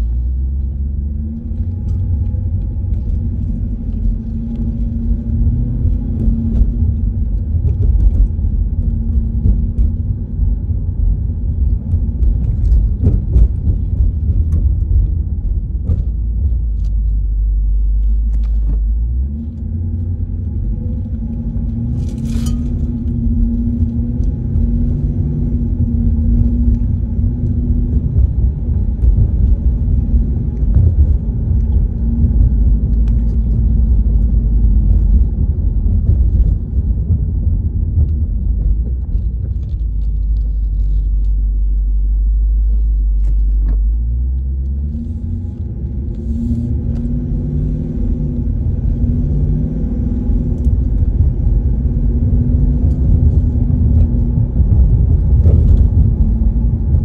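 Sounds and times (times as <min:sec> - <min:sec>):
car engine and road rumble: 0:00.0 - 0:57.0
engine revving: 0:43.2 - 0:57.0.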